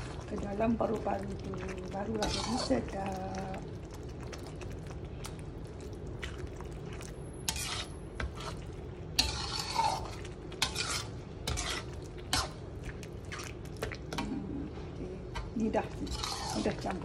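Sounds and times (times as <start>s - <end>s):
steady low hum: 0.0s - 17.0s
spatula scraping a pan: 2.0s - 3.4s, 7.3s - 14.3s, 15.4s - 17.0s.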